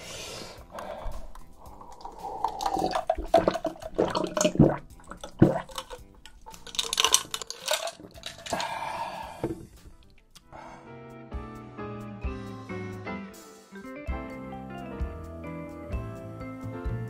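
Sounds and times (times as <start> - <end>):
person gulping water: 0.7 - 10.3
water glugging in bottle: 0.8 - 10.2.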